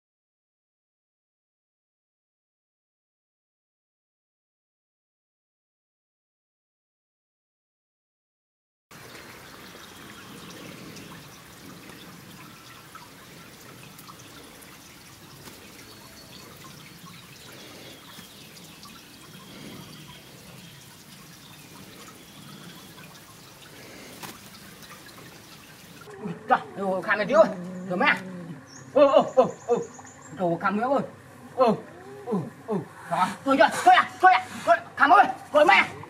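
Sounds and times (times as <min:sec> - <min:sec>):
faint outdoor hiss: 0:08.9 - 0:36.0.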